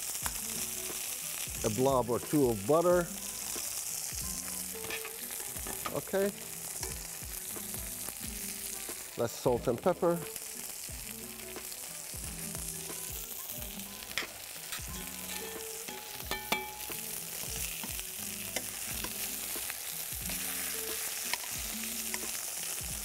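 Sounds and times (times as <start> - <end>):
chicken sizzling in a frying pan: 0.0 - 23.0
metal tongs clicking on a pan: 4.8 - 7.0, 14.1 - 17.0, 17.7 - 19.3, 21.0 - 22.4.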